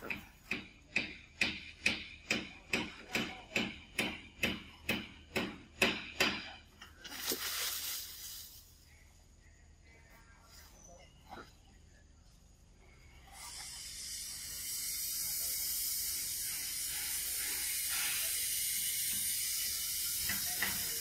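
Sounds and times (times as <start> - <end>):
hissing noise: 13.2 - 21.0.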